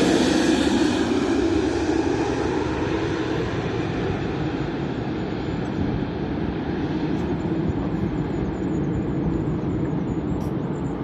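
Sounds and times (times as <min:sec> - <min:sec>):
jet engines rumbling overhead: 0:00.0 - 0:11.0.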